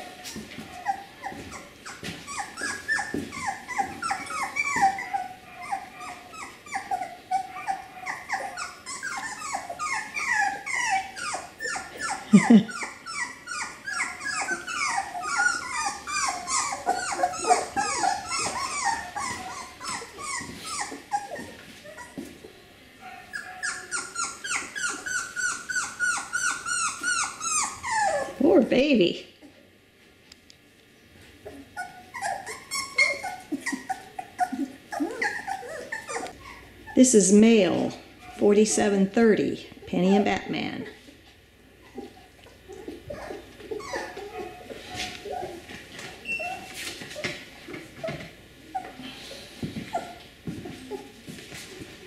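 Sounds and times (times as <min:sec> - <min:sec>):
puppy crying loudly: 0:00.0 - 0:22.2, 0:23.1 - 0:28.6, 0:31.8 - 0:37.2, 0:42.8 - 0:46.8
puppy whimpering: 0:00.0 - 0:22.4, 0:23.0 - 0:28.6, 0:31.4 - 0:38.6, 0:41.8 - 0:51.3.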